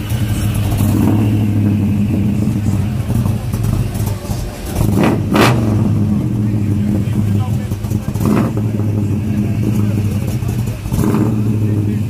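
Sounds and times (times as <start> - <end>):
pickup engine idling: 0.0 - 12.0.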